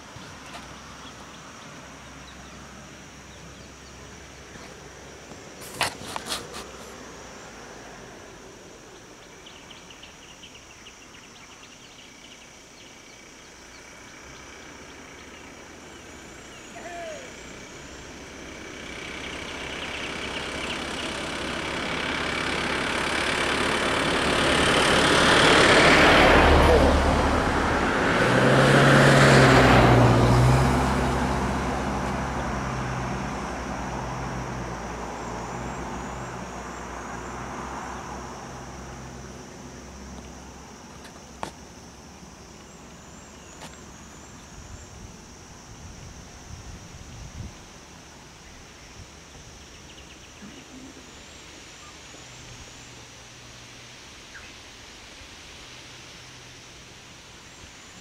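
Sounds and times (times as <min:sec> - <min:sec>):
high insect drone: 0:00.0 - 0:58.0
vehicle engine and tyre noise: 0:00.0 - 0:58.0.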